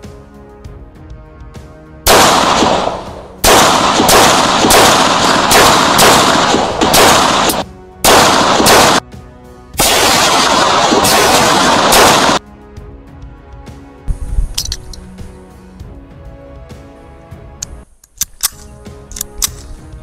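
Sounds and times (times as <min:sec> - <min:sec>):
pistol shots with echo: 0:02.1 - 0:09.0, 0:09.8 - 0:12.4.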